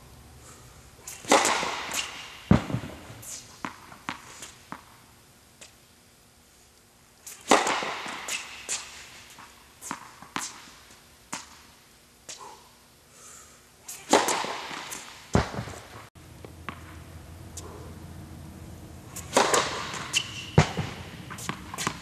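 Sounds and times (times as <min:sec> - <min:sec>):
steady low hum: 0:00.0 - 0:22.0
tennis racket striking ball: 0:01.1 - 0:05.0, 0:07.3 - 0:10.7, 0:14.0 - 0:15.9, 0:19.2 - 0:22.0
tennis ball bouncing: 0:01.2 - 0:05.0, 0:07.5 - 0:10.7, 0:14.1 - 0:17.0, 0:19.2 - 0:22.0.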